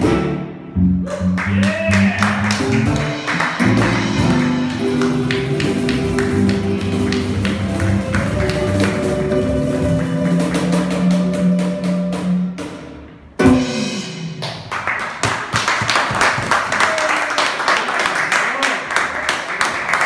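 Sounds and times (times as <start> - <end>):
latin band playing: 0.0 - 14.7
people clapping: 1.3 - 11.3, 14.4 - 20.0
cajon tapping beat: 2.3 - 11.8.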